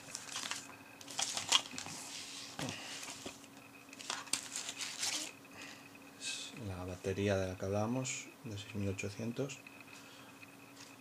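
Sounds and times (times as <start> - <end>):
paper and cardboard rustling: 0.0 - 3.4, 4.0 - 5.3.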